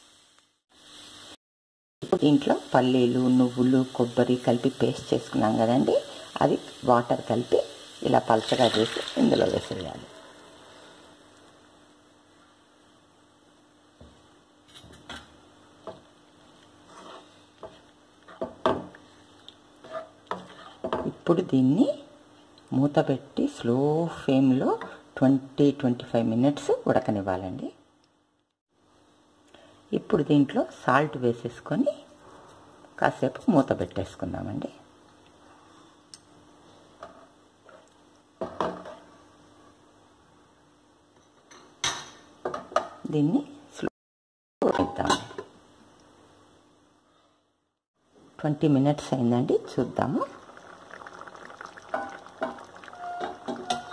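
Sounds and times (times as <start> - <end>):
utensils scraping a cooking pan: 16.8 - 18.5, 19.8 - 20.9, 52.9 - 53.9
metal cookware clinking: 52.0 - 53.9.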